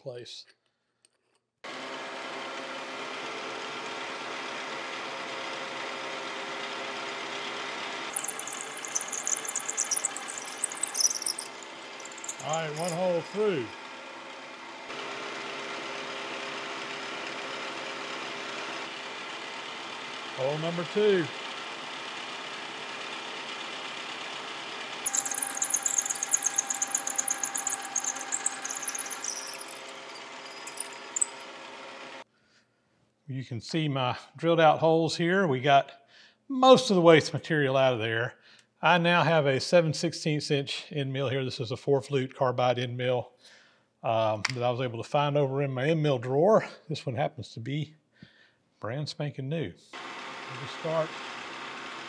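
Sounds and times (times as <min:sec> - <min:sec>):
milling machine spindle turning: 0:08.2 - 0:13.4, 0:25.1 - 0:31.5.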